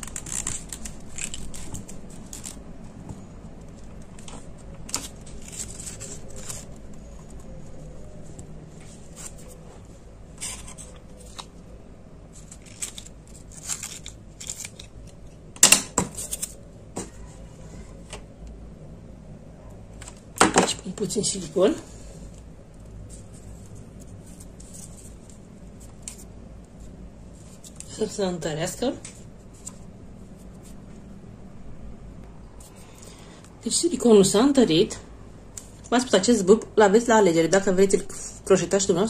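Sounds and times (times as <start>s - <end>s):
tape crackling as it is wrapped: 0.0s - 9.6s, 10.3s - 17.3s, 22.3s - 28.0s.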